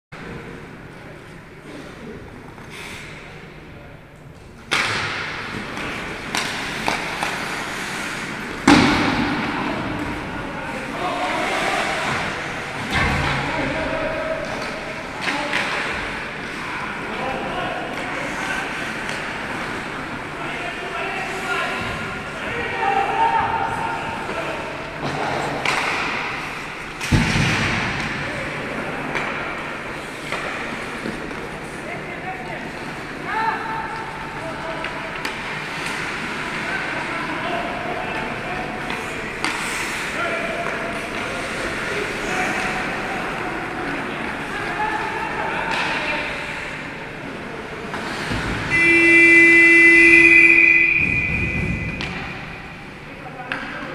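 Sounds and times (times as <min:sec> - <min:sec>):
hockey sticks and puck clacking: 0:04.4 - 0:13.6, 0:14.4 - 0:16.6, 0:17.4 - 0:20.3, 0:23.7 - 0:31.8, 0:33.8 - 0:46.4, 0:47.8 - 0:52.7, 0:53.4 - 0:53.9
skates scraping ice: 0:05.5 - 0:08.7, 0:10.0 - 0:12.9, 0:33.9 - 0:52.5.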